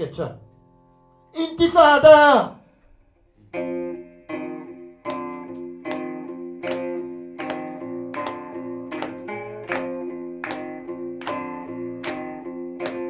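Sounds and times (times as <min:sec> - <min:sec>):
guitar strumming chords: 0:03.4 - 0:13.0.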